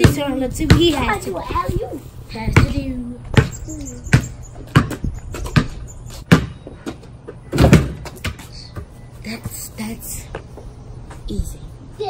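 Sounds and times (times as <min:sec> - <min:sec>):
basketball bouncing on concrete: 0:00.0 - 0:01.8, 0:02.4 - 0:09.6.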